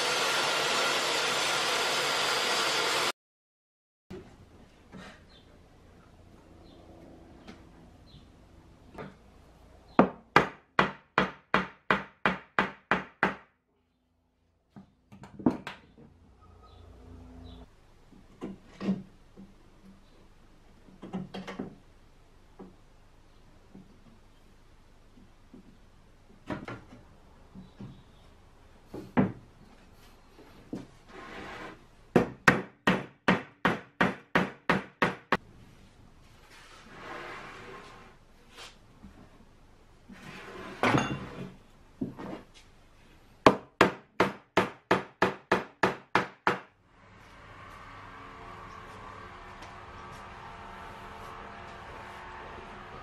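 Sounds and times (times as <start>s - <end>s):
wood sliding scrape: 31.0s - 31.8s, 36.4s - 38.8s, 40.1s - 40.8s.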